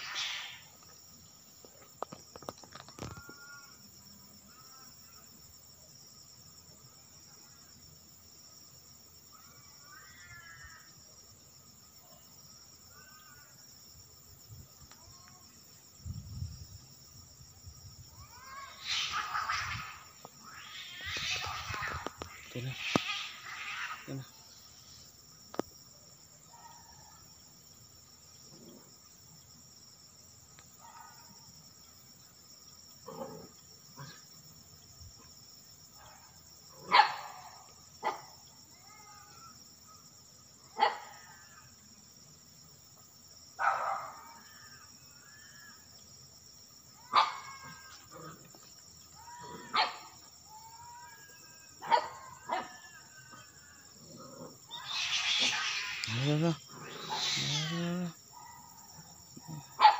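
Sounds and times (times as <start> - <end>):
dog barking: 30.8 - 31.3, 36.0 - 38.3, 40.8 - 41.1, 43.6 - 44.2, 47.1 - 47.5, 49.6 - 50.1, 51.8 - 52.7
faint wavering cries: 38.7 - 39.6, 49.1 - 54.0, 54.7 - 58.2.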